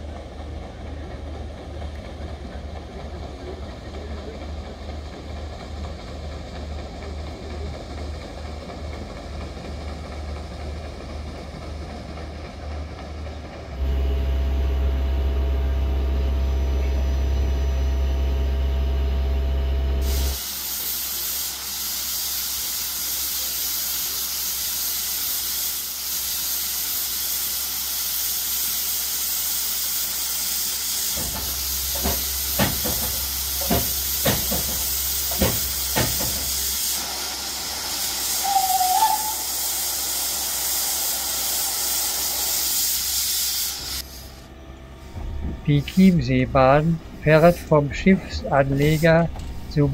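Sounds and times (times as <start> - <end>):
steam hissing: 20.0 - 49.9
sharp knocks: 31.2 - 36.5.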